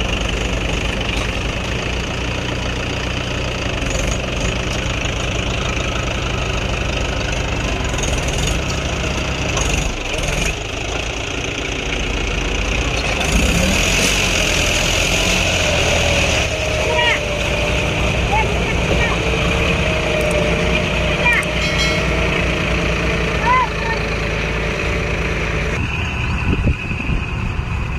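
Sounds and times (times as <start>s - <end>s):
tractor diesel engines under load: 0.0s - 27.9s.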